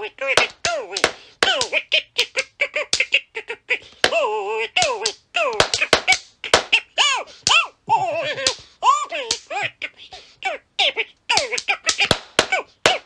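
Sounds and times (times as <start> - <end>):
squeaky puppet voice calls: 0.0 - 13.0
wooden slapstick slaps: 0.3 - 3.2, 4.8 - 6.8, 7.4 - 9.6, 11.3 - 13.0.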